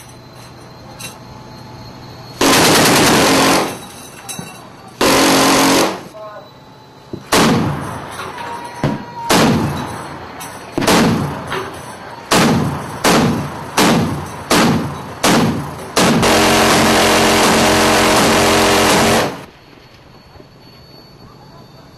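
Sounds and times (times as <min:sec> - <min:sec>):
cannon shots with rumble: 0:02.4 - 0:03.7, 0:07.3 - 0:08.0, 0:08.8 - 0:09.9, 0:10.8 - 0:11.5, 0:12.3 - 0:19.5.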